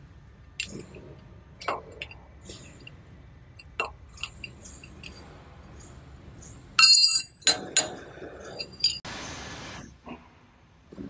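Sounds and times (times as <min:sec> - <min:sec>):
metal clinking and clanking: 0:00.5 - 0:09.0.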